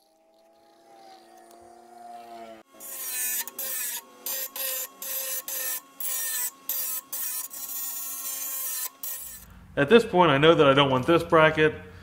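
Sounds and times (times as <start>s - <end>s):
motor whine: 0.0s - 6.8s
power tool cutting steel plate: 0.0s - 9.5s.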